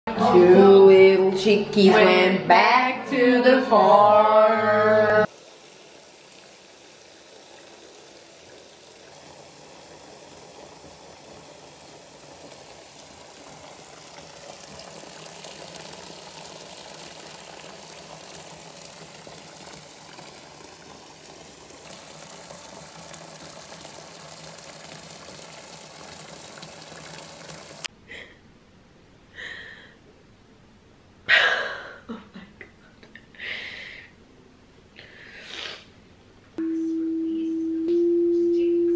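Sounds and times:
tap water pouring into bathtub: 0:05.2 - 0:27.9
person breathing: 0:29.3 - 0:30.0, 0:33.4 - 0:34.2, 0:35.0 - 0:35.8.

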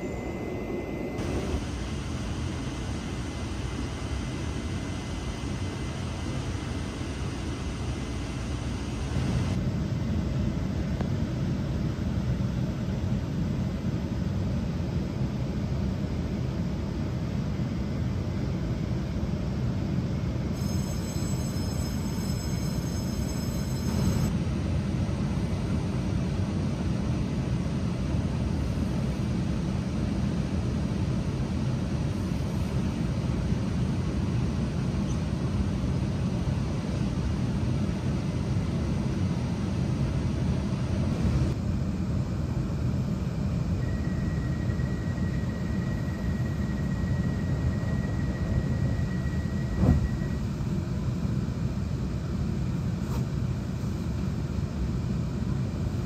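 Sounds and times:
faint high steady tone: 0:00.0 - 0:09.6, 0:20.5 - 0:24.4, 0:43.7 - 0:51.0
train rumbling: 0:47.5 - 0:50.8.

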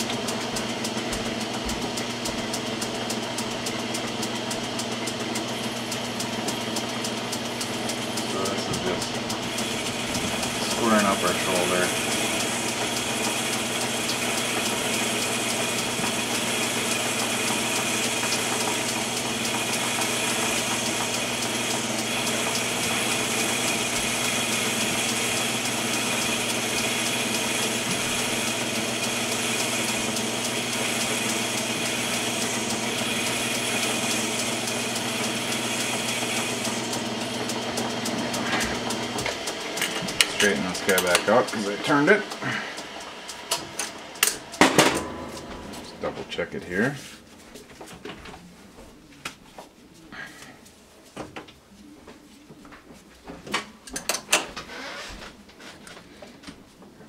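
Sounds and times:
metal lathe whine and hiss: 0:00.0 - 0:45.2.

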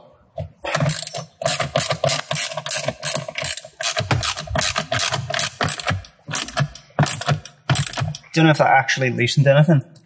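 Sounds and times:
socket ratchet clicking: 0:00.8 - 0:08.2.

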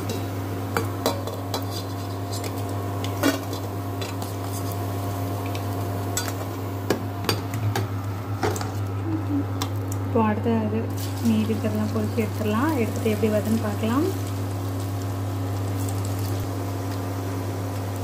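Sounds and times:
induction cooktop hum: 0:00.0 - 0:18.0.

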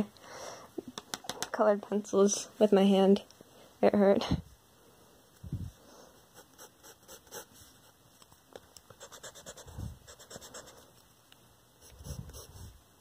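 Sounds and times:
pencil scratching on paper: 0:06.3 - 0:07.6, 0:09.0 - 0:10.8, 0:11.9 - 0:12.7.

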